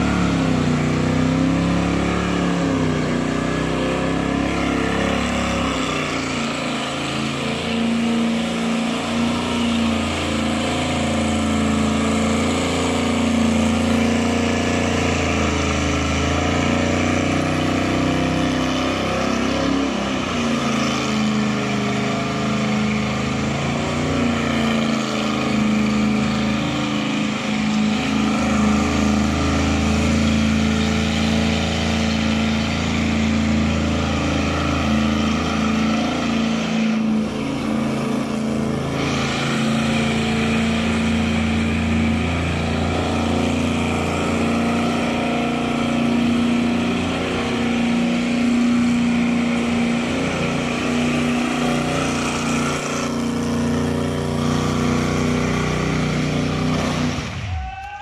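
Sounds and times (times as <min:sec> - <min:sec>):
car engine at high revs: 0:00.0 - 0:57.9.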